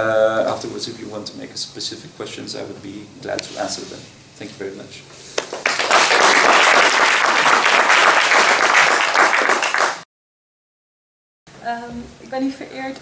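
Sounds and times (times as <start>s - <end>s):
audience applauding: 5.4s - 10.1s.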